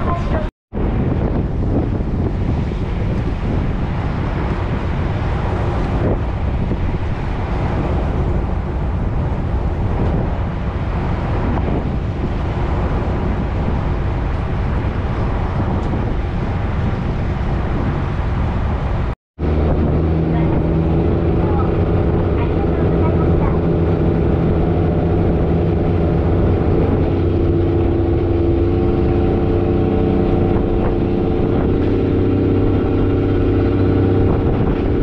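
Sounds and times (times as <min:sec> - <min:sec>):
water rushing: 0:00.0 - 0:35.0
wind buffeting microphone: 0:00.0 - 0:35.0
ferry engine running: 0:12.3 - 0:35.0.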